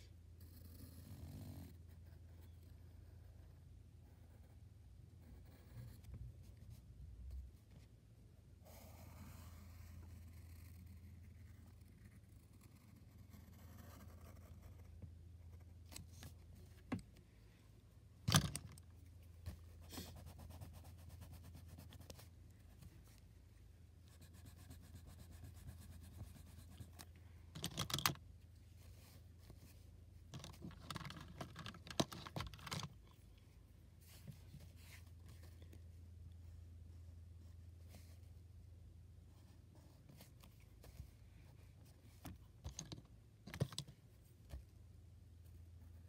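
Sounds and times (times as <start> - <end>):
pencil scratching on paper: 1.7 - 6.2, 8.7 - 15.8, 19.4 - 22.3, 24.1 - 27.0.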